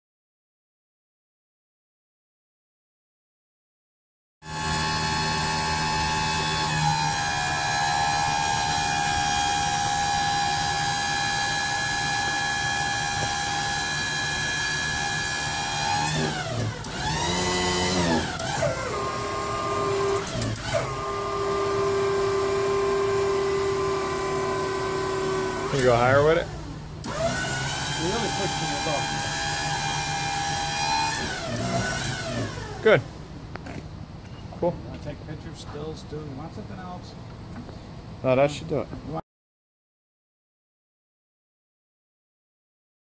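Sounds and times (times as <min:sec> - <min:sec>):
electric hydraulic pump whining: 0:04.4 - 0:33.8.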